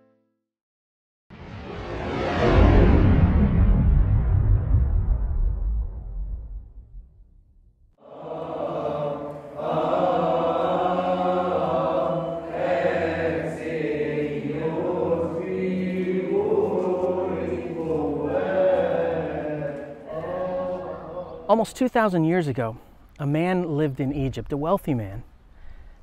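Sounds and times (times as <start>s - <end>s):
voices chanting: 8.0s - 21.7s.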